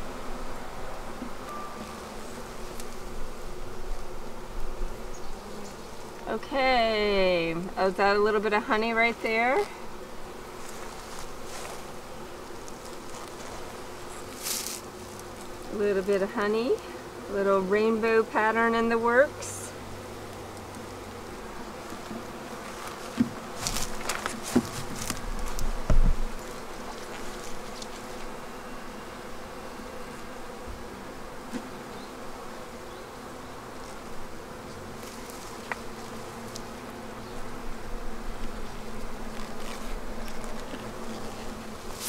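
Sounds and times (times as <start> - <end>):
honeybees buzzing: 0.0 - 42.0
knocks and scrapes of wooden frames: 21.8 - 28.2.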